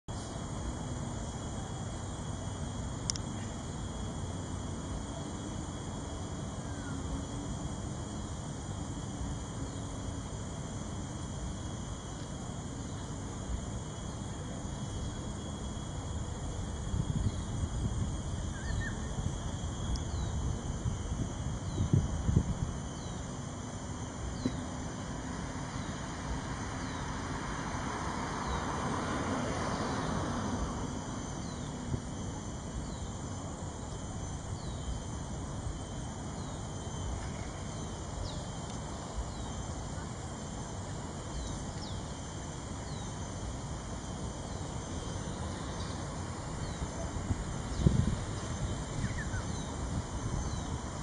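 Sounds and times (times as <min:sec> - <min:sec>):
steady hiss: 0:00.1 - 0:51.0
faint high chirp: 0:18.4 - 0:19.2.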